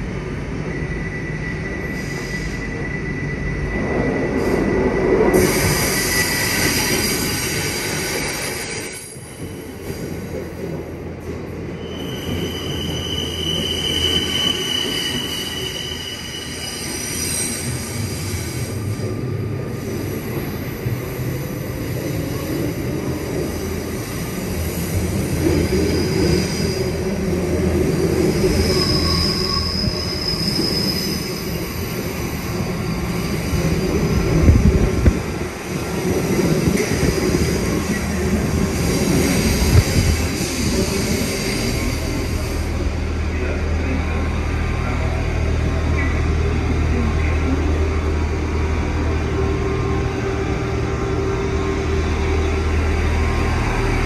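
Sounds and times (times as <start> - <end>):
train rumbling on track: 0.0 - 54.0
high-pitched wheel squeals: 0.6 - 9.7, 11.7 - 18.0, 28.0 - 34.7.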